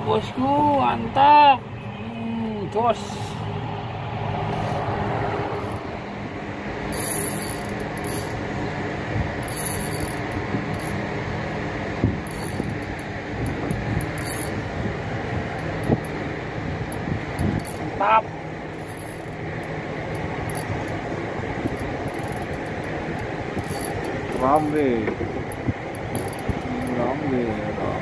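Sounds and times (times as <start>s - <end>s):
boat engine humming: 0.0s - 28.0s
fishing reel whirring and ticking: 6.9s - 8.4s, 9.4s - 11.0s, 12.2s - 14.6s, 16.9s - 21.0s, 21.6s - 24.8s, 25.5s - 27.1s.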